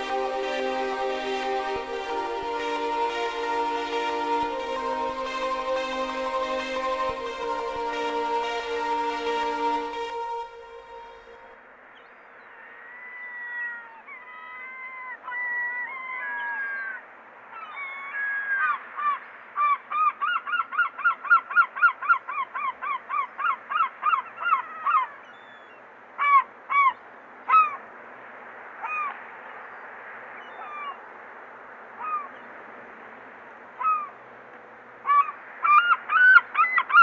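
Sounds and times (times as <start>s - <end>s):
gull calling: 33.8s - 34.2s, 35.1s - 37.0s.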